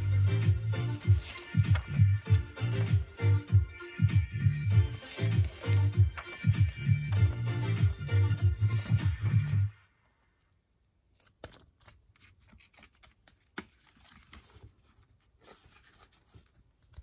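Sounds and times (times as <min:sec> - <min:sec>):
background music: 0:00.0 - 0:09.8
paper booklet rustling: 0:00.5 - 0:03.2, 0:04.8 - 0:09.2, 0:11.1 - 0:17.0.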